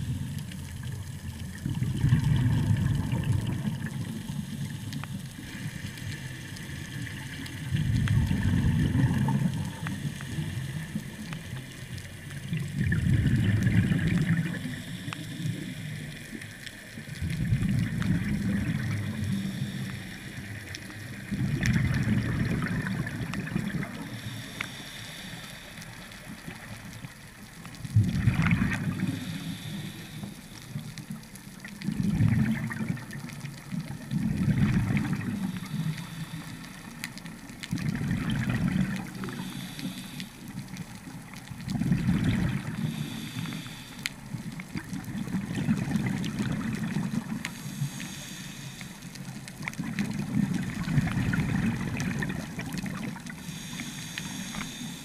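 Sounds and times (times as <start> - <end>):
exhaled bubbles gushing: 0.0 - 11.6, 12.2 - 14.8, 17.0 - 19.5, 21.1 - 24.2, 26.4 - 29.4, 30.8 - 35.7, 37.3 - 39.6, 40.7 - 43.2, 44.3 - 47.8, 49.4 - 53.7
regulator inhale hiss: 9.5 - 12.2, 14.4 - 17.0, 18.8 - 21.3, 23.8 - 26.7, 28.8 - 30.9, 35.2 - 37.4, 39.1 - 40.7, 42.6 - 44.4, 47.4 - 49.4, 53.0 - 55.0.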